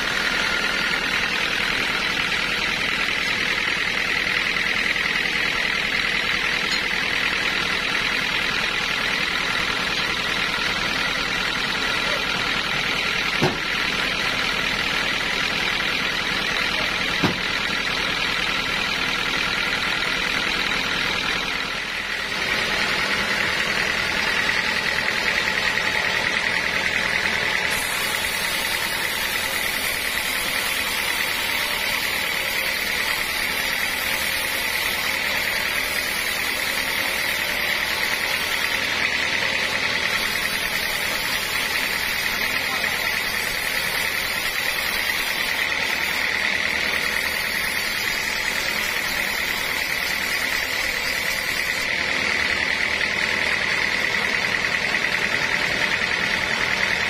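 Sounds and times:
band saw blade cutting wood: 0.0s - 57.0s
band sawmill running: 0.0s - 57.0s
sharp knocks of wood on carriage: 13.4s - 13.7s, 17.2s - 17.5s.

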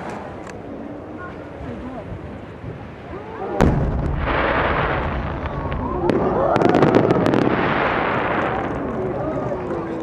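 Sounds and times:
firework bang rumble: 3.6s - 9.0s
firework sharp crack: 3.6s - 9.0s.

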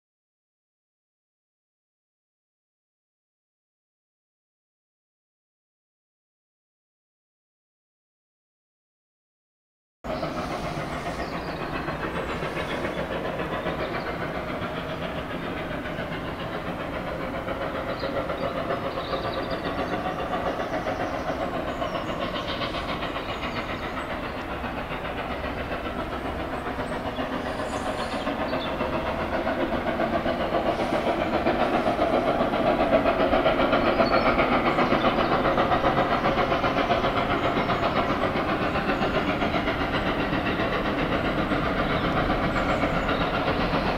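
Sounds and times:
hissing steam: 10.1s - 43.9s
steam locomotive running: 10.1s - 43.9s.

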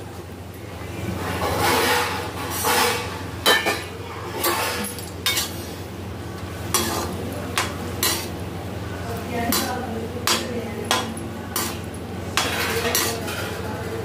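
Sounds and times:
metal spatula scraping a pan: 1.4s - 3.2s, 4.4s - 5.8s, 6.7s - 8.4s, 9.5s - 13.6s
potatoes frying in hot oil: 3.9s - 14.0s
spatula clinking against pan: 6.8s - 8.4s, 9.5s - 13.6s.

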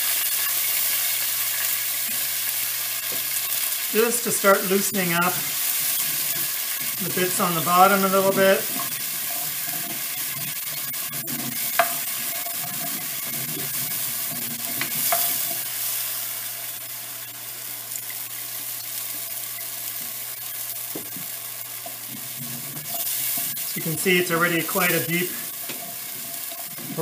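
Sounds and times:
stock sizzling in a pot: 0.0s - 27.0s
wooden spoon scraping a pot: 4.7s - 15.7s, 21.9s - 24.0s.

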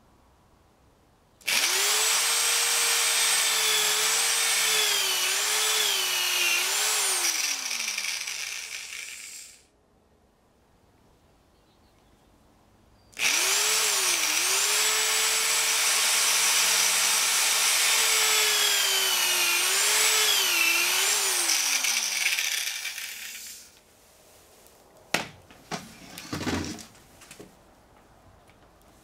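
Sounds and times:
electric drill boring into wood: 1.4s - 9.6s, 13.2s - 23.8s.

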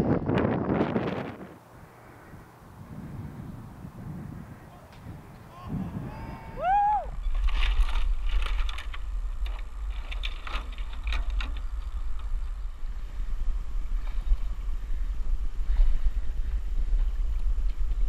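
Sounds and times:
wind buffeting microphone: 0.0s - 18.0s
branches and twigs crackling: 7.2s - 13.2s.

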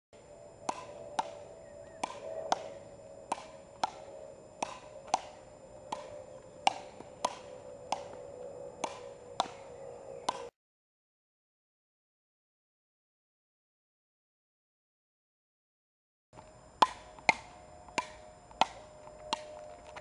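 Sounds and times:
ball striking wooden paddles: 0.6s - 8.2s, 8.8s - 10.5s, 16.8s - 20.0s.

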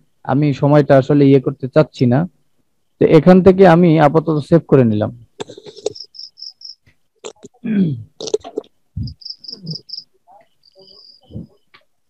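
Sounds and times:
cricket chirping: 5.4s - 7.5s, 8.2s - 11.8s.

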